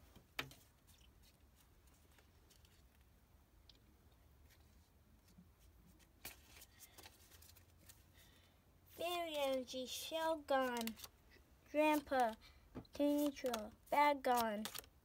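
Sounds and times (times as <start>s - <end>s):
trading cards clicking and rustling: 9.2s - 11.1s, 11.8s - 15.0s.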